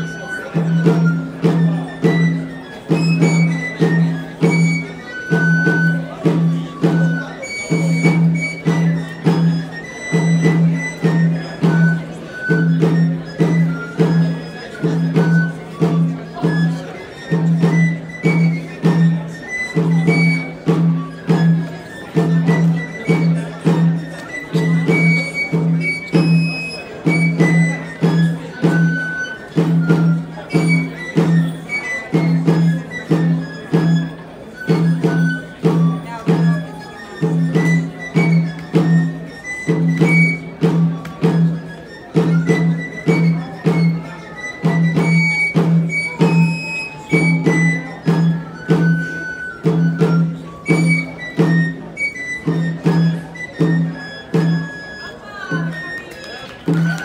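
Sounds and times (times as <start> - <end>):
small side drum beat: 1.6 - 5.2.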